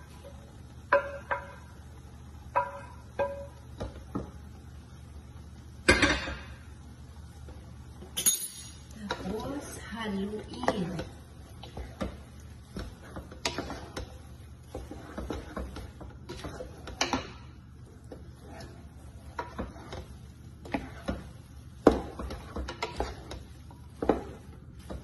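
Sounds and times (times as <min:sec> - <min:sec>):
spatula scraping frying pan: 0:09.0 - 0:25.0.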